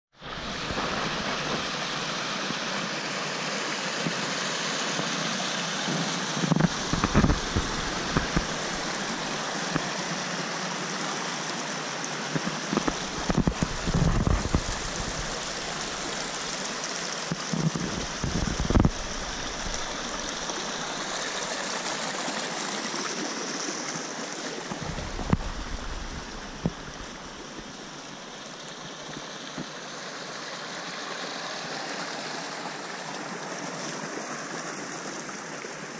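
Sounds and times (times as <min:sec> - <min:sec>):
stream running over rocks: 0:00.1 - 0:35.9
low rumbles and thumps: 0:06.5 - 0:09.9, 0:12.8 - 0:16.6, 0:17.3 - 0:21.2, 0:24.7 - 0:27.9.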